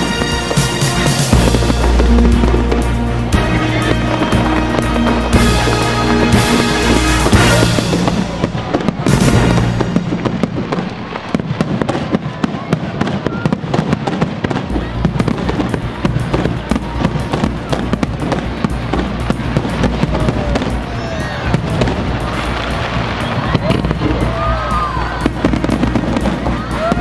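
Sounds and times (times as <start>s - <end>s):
crackling pops and bangs: 0.0s - 24.4s, 25.0s - 27.0s
fireworks shells bursting: 0.0s - 27.0s
low rumble: 1.3s - 11.7s.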